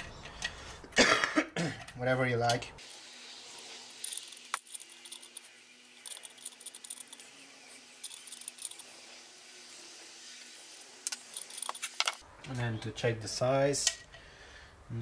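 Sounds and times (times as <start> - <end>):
small metal parts clinking: 3.6 - 9.2, 10.1 - 12.2
spanner clinking on metal nuts: 4.0 - 7.3, 8.0 - 8.8, 11.1 - 12.2.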